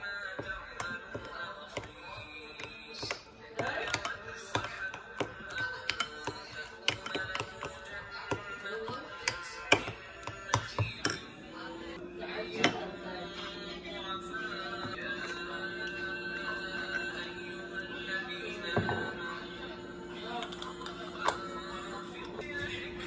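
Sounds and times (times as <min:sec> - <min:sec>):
metal spoon scraping glass bowl: 0:00.4 - 0:11.3.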